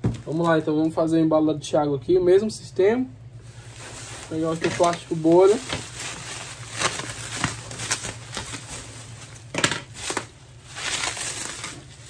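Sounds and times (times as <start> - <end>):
bubble wrap crinkling: 0.0 - 1.0, 3.4 - 12.0.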